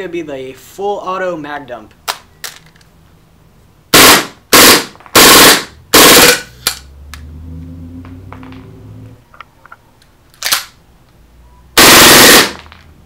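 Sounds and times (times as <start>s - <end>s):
airsoft gun firing bursts: 4.0s - 6.5s, 11.8s - 12.6s.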